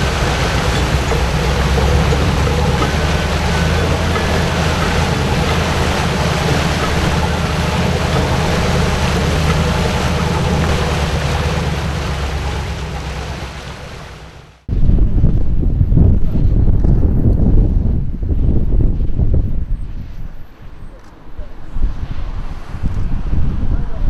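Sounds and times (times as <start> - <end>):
motorboat engines running: 0.0 - 14.7
water rushing from wakes: 0.0 - 14.7.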